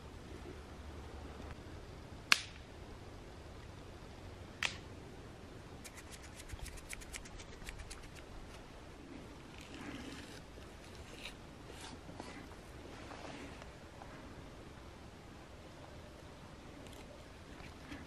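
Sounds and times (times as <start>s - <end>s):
low steady background noise: 0.0s - 18.0s
sharp snaps: 2.3s - 2.7s, 4.6s - 4.9s, 5.8s - 8.6s
faint irregular clicks: 4.6s - 4.9s, 5.8s - 8.6s.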